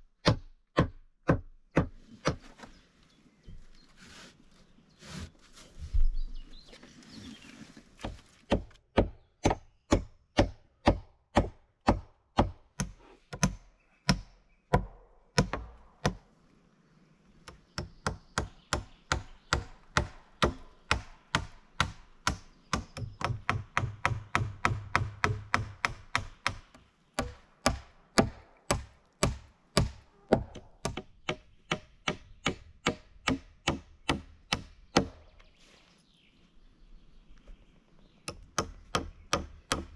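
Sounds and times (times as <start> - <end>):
hand tool striking wood: 18.0 - 35.2.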